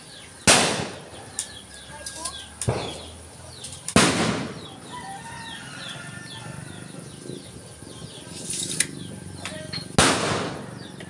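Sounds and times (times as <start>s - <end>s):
small birds chirping: 0.0s - 11.0s
loud sharp crack: 0.4s - 1.6s, 2.2s - 4.8s, 9.9s - 11.0s.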